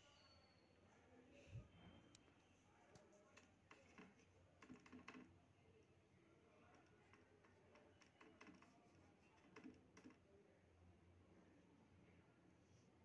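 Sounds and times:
faint clicks and taps: 2.9s - 5.3s, 6.6s - 10.2s.

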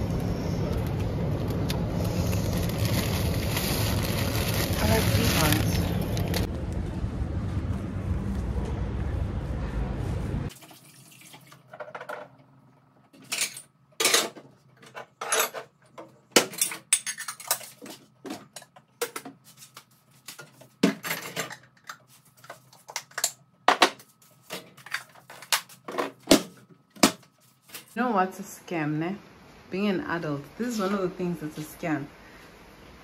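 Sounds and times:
dishes and cutlery clinking: 16.4s - 19.3s.

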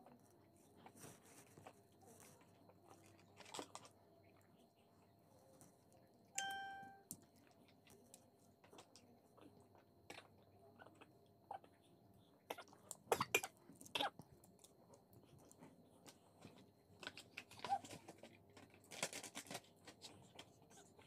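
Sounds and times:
clear ding: 6.4s - 7.0s.

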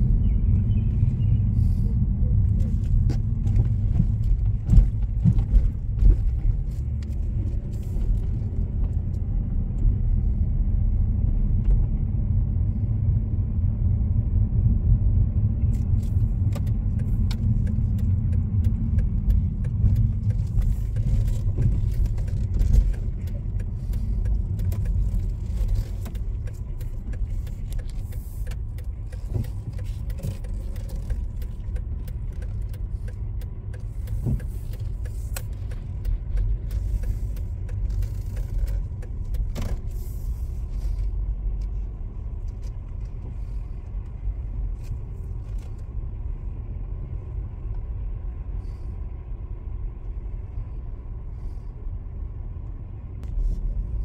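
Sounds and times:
car engine and tyres rumbling: 0.0s - 54.0s
light clicks and rattles: 15.8s - 45.9s.

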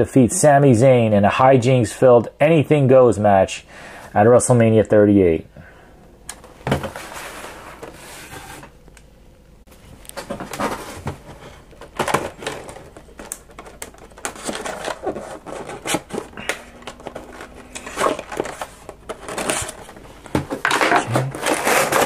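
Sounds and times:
packaging rustling and crinkling: 9.8s - 22.0s.

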